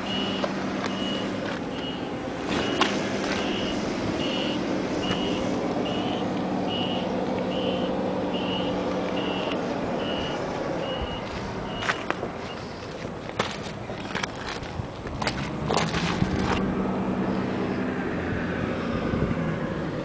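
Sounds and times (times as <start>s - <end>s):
back-up alarm beeping: 0.0s - 12.7s
engine hum: 0.0s - 20.0s.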